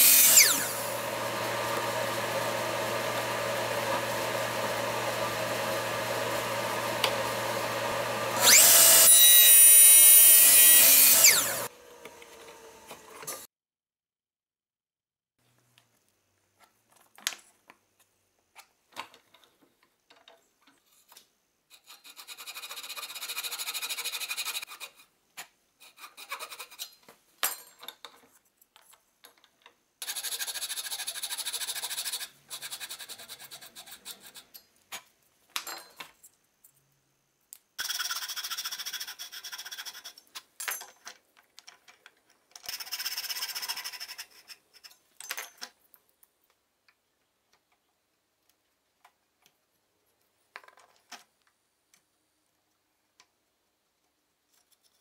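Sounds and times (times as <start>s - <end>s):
handsaw cutting wood: 0.0s - 13.5s
clicks and knocks of handling: 15.6s - 21.3s, 27.0s - 29.8s, 40.4s - 42.7s, 50.5s - 52.1s.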